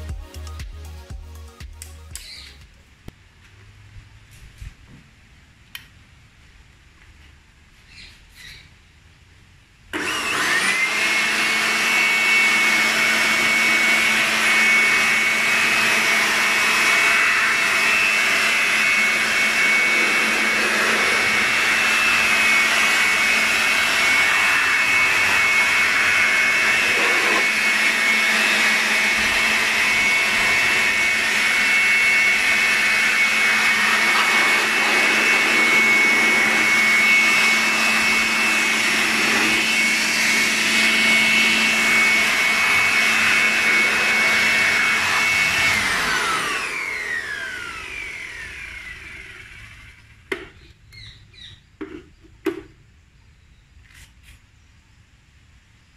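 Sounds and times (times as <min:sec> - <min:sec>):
electric blower motor whine: 0:09.9 - 0:51.5.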